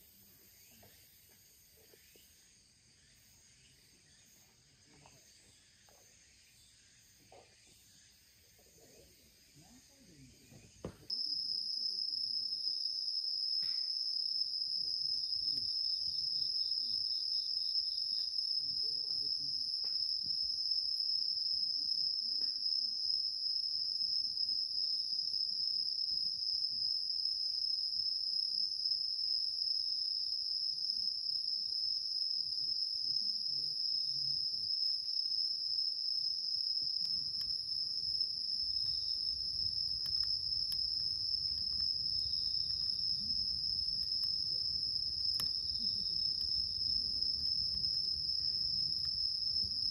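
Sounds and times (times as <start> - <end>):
insects singing: 2.9 - 49.9
wood fire crackling: 34.7 - 49.9.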